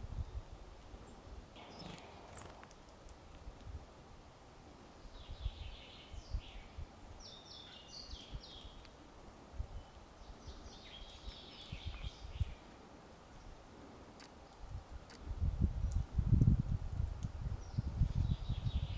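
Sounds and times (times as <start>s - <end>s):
small songbird calling: 4.9s - 8.9s, 9.7s - 12.7s.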